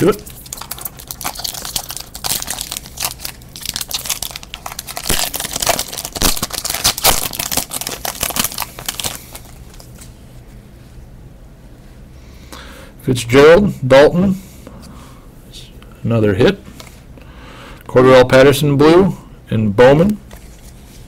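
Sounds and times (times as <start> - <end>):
foil wrapper tearing and crinkling: 0.0 - 10.0.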